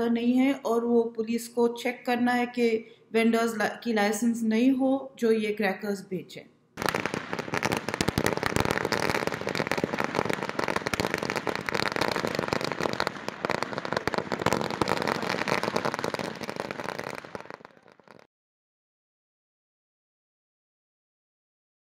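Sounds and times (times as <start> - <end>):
firecrackers going off: 6.8 - 18.3.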